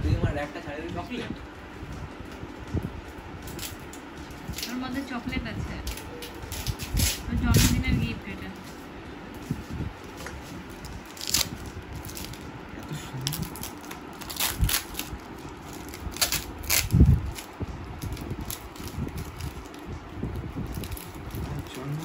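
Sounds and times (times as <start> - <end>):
wrapping paper crinkling and tearing: 5.8 - 7.8, 8.6 - 22.0.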